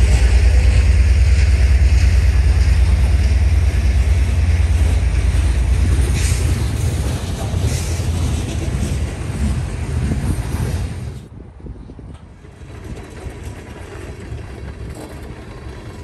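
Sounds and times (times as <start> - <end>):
freight train wheels rumbling: 0.0 - 16.0
wheel and coupler clicks: 12.1 - 16.0.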